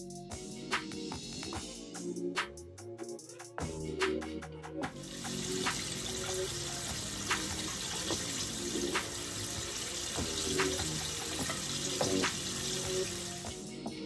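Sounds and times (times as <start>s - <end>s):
food deep-frying in oil: 5.0s - 13.5s.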